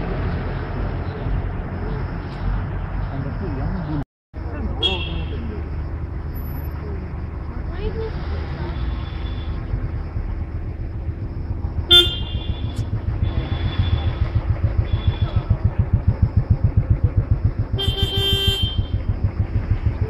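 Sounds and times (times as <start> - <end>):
vehicle engine rumbling: 0.0 - 20.0
vehicle horn honking: 4.8 - 5.4, 11.9 - 15.5, 17.7 - 19.1.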